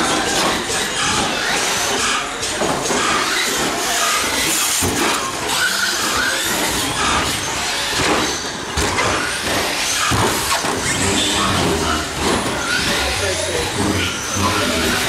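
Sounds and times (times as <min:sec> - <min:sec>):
electric motors whining: 0:00.0 - 0:15.0
tyre and chassis noise: 0:00.0 - 0:15.0.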